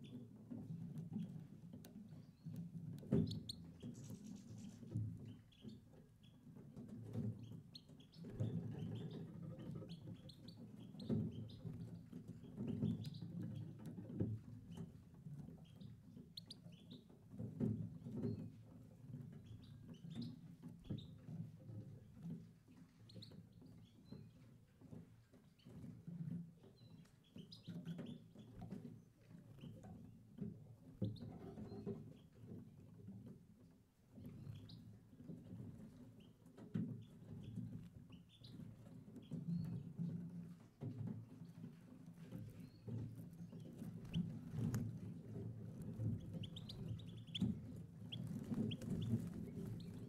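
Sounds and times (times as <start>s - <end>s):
birds chirping: 43.8s - 50.0s.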